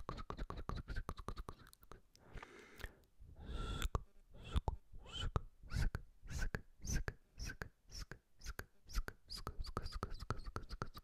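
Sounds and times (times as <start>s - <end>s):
lip and tongue clicks: 0.0s - 2.2s.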